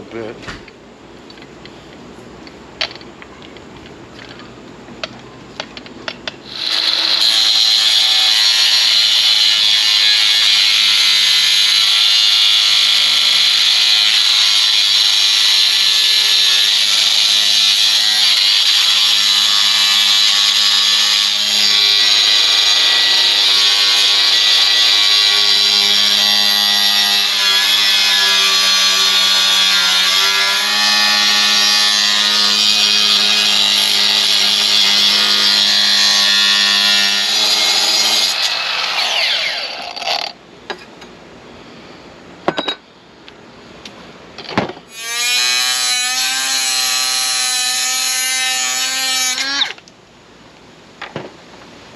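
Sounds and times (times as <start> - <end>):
angle grinder whining: 6.4 - 40.4.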